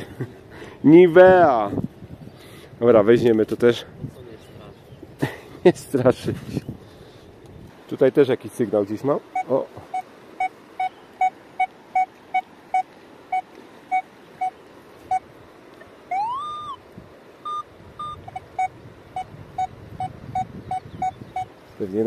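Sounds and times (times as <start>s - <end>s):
metal detector beeping: 9.3s - 15.3s, 16.1s - 16.8s, 17.4s - 21.5s
rising and falling tone: 16.1s - 16.8s.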